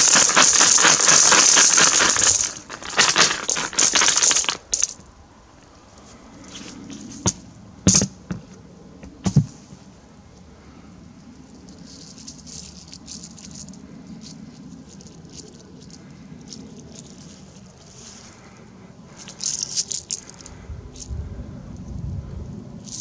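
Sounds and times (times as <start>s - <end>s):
coins clinking into metal bucket: 0.0s - 5.0s, 19.2s - 21.1s
faint rustling patter: 8.4s - 22.1s.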